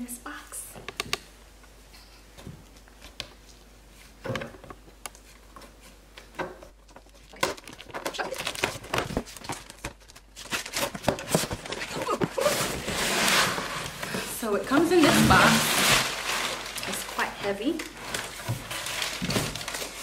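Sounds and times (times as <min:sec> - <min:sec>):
cardboard crackling and tape tearing: 0:06.9 - 0:20.0.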